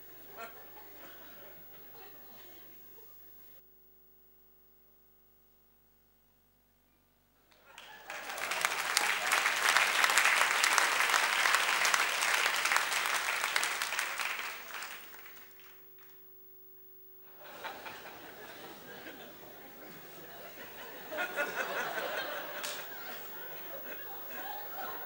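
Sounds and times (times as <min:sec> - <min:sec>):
audience applauding: 0:07.5 - 0:16.2, 0:17.3 - 0:25.0.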